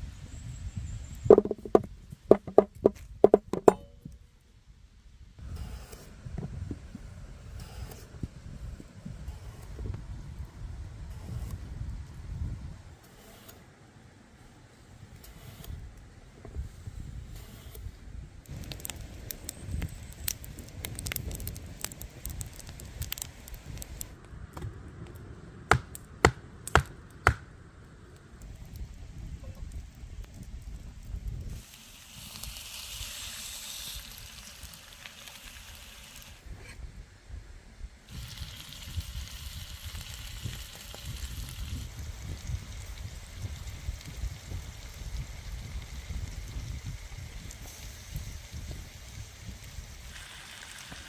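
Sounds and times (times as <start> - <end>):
sharp knocks: 1.3 - 4.0
ringing taps on hard object: 3.3 - 4.0
faint hiss: 31.4 - 36.6, 38.0 - 51.0.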